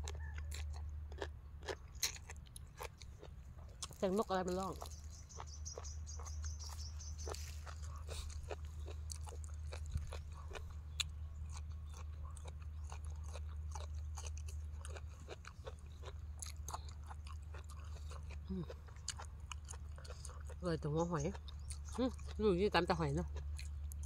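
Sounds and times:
crunchy chewing of raw vegetables: 0.0 - 24.0
steady low hum: 0.0 - 24.0
bird chirping call: 4.6 - 7.7.

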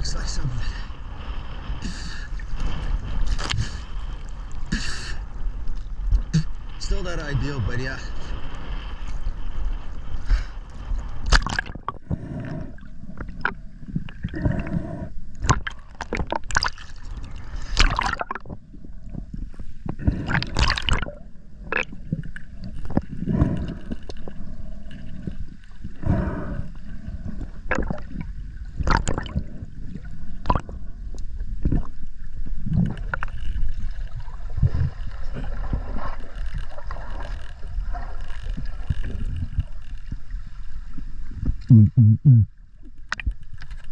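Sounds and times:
water gurgling and bubbling: 11.2 - 40.3.

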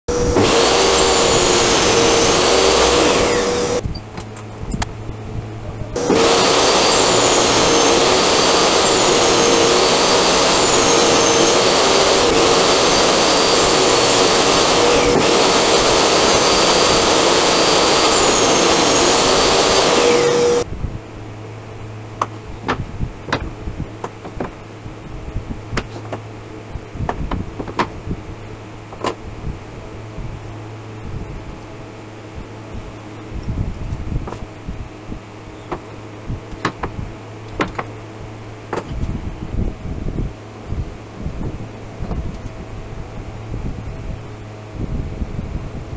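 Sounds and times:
table saw cutting wood: 0.0 - 3.8, 6.0 - 20.7
wood and tools knocking: 36.6 - 37.9.

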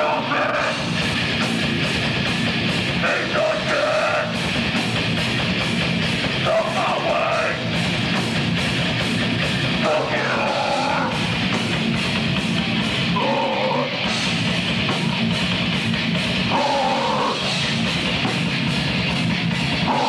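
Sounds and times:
person singing: 0.0 - 0.8, 3.0 - 4.4, 6.4 - 7.6, 9.8 - 11.2
bass guitar: 0.0 - 20.0
drums: 0.0 - 20.0
electric guitar: 0.0 - 20.0.

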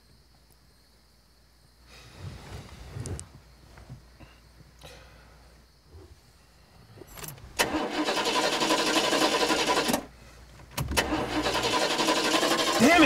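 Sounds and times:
car engine cranking: 7.1 - 13.0.

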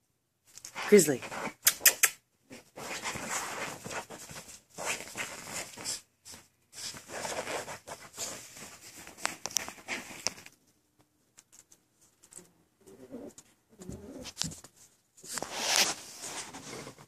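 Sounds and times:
rustling and scratching: 0.4 - 17.0
puppies scuffling in play: 2.6 - 10.5.

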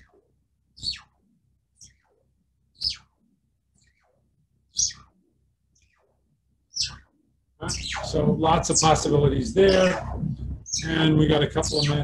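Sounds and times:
synthesizer tones swooping downward: 7.6 - 12.0.

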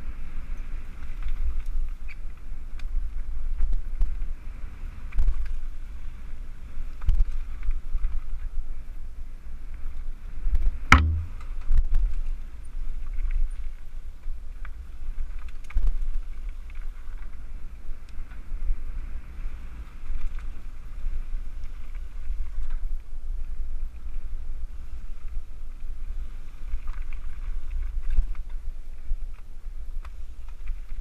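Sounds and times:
bike tyres rumbling on gravel: 0.0 - 31.0
sharp clunk: 10.9 - 11.4.

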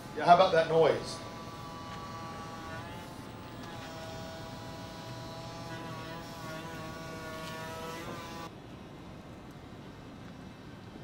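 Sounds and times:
electric excavator whine: 0.0 - 8.5.

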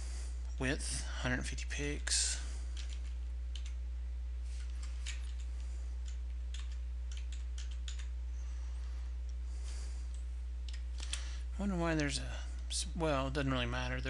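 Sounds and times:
steady low hum: 0.0 - 14.0
keyboard keys tapping: 2.8 - 3.8, 4.6 - 8.1.

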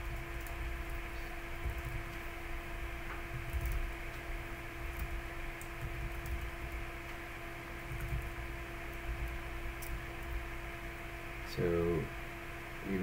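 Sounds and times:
electrical hum and hiss: 0.0 - 13.0
keyboard typing clicks: 1.6 - 2.3, 3.1 - 4.2, 4.9 - 7.2, 7.8 - 10.4.

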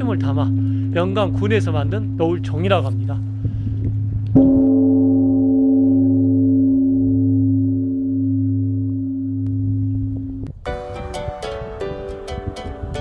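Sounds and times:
large bell struck and ringing: 0.0 - 10.3
low beating hum: 0.0 - 13.0.

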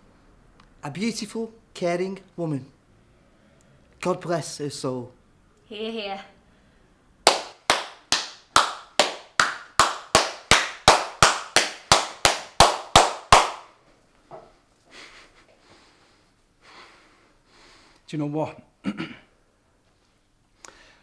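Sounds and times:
slow handclaps: 7.2 - 13.8.

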